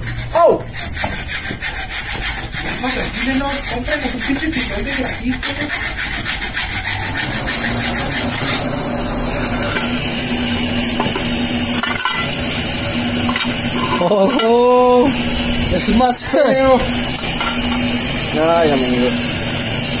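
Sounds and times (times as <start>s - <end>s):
electric blower rushing air: 6.1s - 20.0s.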